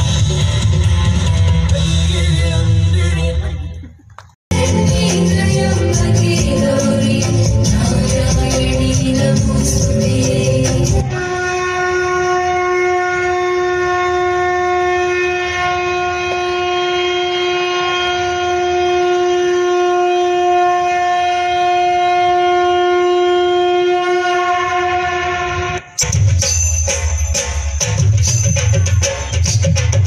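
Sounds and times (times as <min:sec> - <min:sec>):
conch shell blown: 0:10.8 - 0:25.9.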